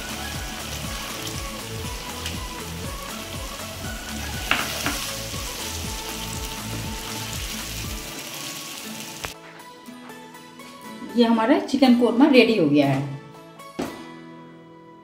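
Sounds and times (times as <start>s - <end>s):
curry sizzling and bubbling in pan: 0.0s - 9.4s
spatula knocking against pan: 4.4s - 5.0s.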